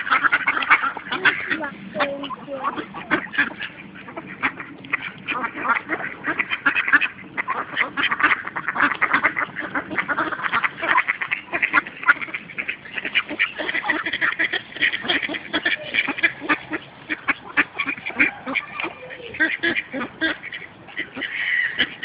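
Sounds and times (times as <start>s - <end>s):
ducks quacking: 0.0s - 22.0s.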